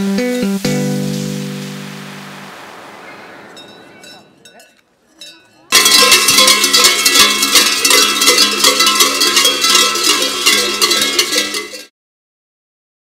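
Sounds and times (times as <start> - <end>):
large cowbells clanging: 3.5 - 11.9.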